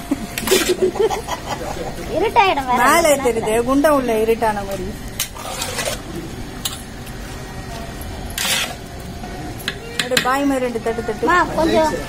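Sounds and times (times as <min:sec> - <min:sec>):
metal ladle scraping metal pot: 0:05.2 - 0:06.0, 0:08.4 - 0:08.8.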